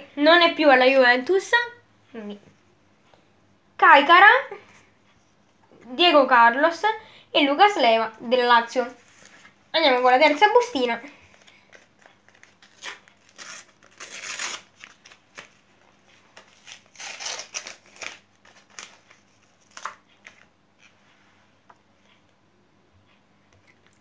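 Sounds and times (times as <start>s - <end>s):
wrapper tearing and crinkling: 11.8s - 15.6s, 16.4s - 20.0s.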